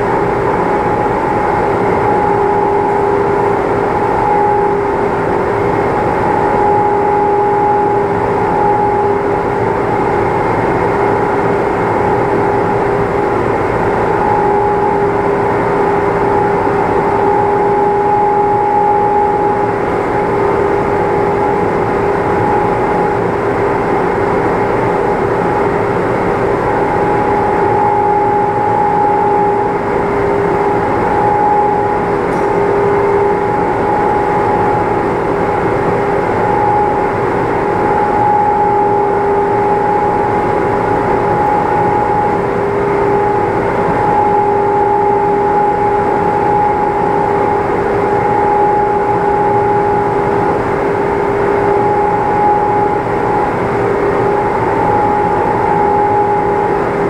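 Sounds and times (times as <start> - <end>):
machine hum with two-note drone: 0.0 - 57.0.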